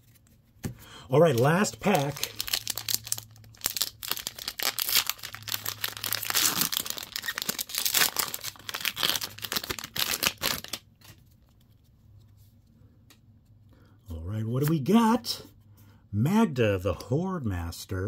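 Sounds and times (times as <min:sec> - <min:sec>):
foil wrapper tearing and crinkling: 0:01.2 - 0:10.9.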